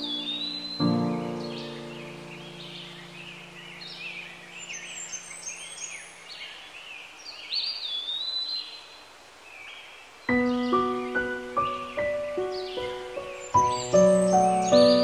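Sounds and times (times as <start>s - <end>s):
background music chord: 0.0s - 4.7s, 10.3s - 15.0s
birds chirping and whistling: 0.0s - 8.9s, 9.5s - 15.0s.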